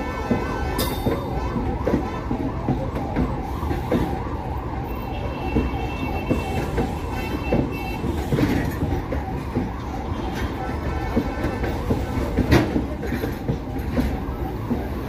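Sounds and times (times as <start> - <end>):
freight wagons rumbling: 0.0 - 15.0
wheels knocking over rail joints: 5.2 - 15.0.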